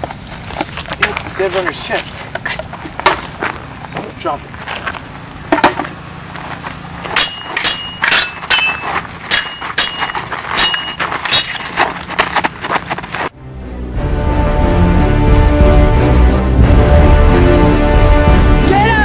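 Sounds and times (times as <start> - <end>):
stick swords clashing: 7.1 - 12.0.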